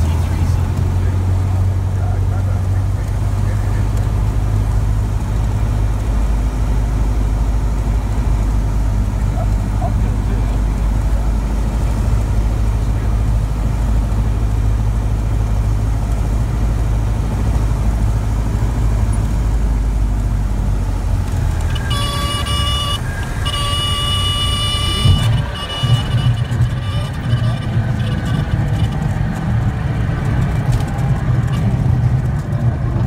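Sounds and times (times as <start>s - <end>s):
stall warning horn: 21.6s - 29.0s.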